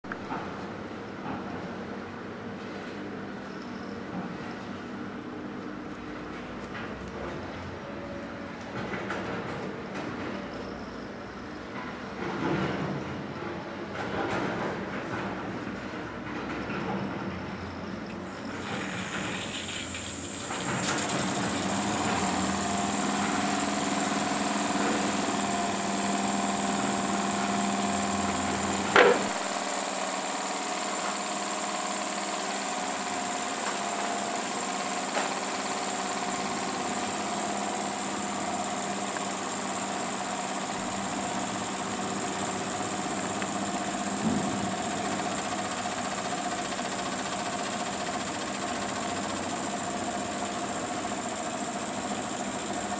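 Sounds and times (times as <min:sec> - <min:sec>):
toy steam engine running: 0:18.2 - 0:52.9.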